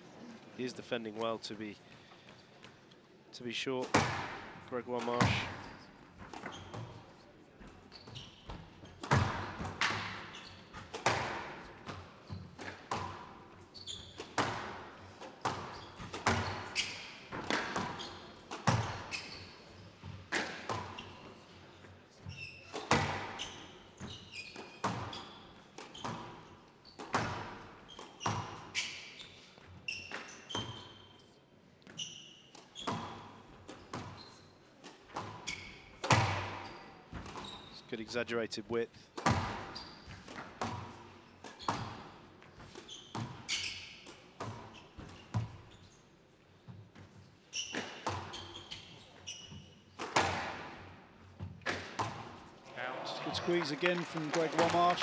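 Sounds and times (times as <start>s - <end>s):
racket hitting squash ball: 3.8s - 7.0s, 8.5s - 21.4s, 22.3s - 29.2s, 34.8s - 37.6s, 39.2s - 45.6s, 47.6s - 49.0s, 49.9s - 52.6s
shoes squeaking on floor: 5.0s - 38.3s, 39.3s - 50.4s.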